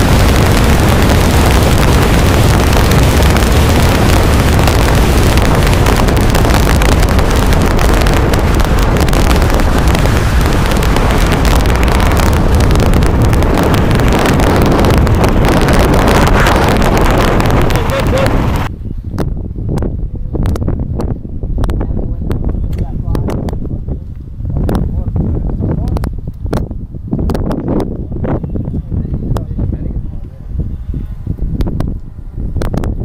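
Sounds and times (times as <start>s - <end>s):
motorcycle engine running: 0.0s - 18.7s
wind buffeting microphone: 0.0s - 33.0s.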